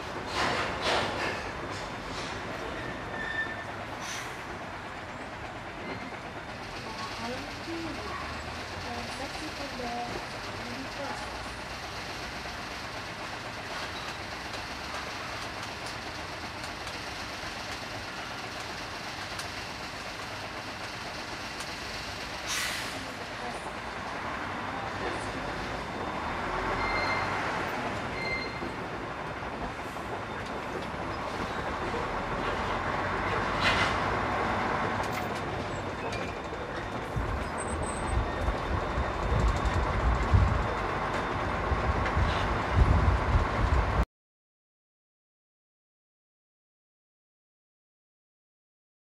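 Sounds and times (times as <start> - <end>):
diesel engine rumble: 0.0 - 44.0
road noise: 0.0 - 44.0
short hiss: 22.5 - 23.0.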